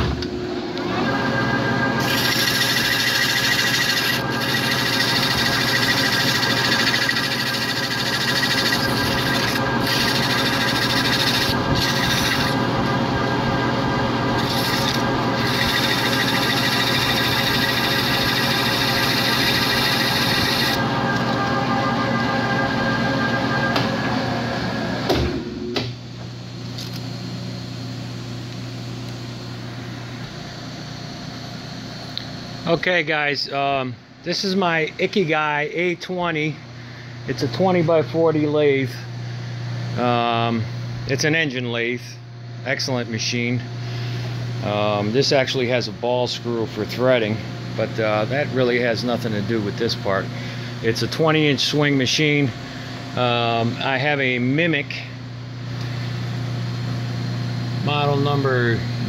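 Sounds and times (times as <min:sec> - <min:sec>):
steady low hum: 0:00.0 - 0:59.0
lathe humming: 0:00.8 - 0:24.7.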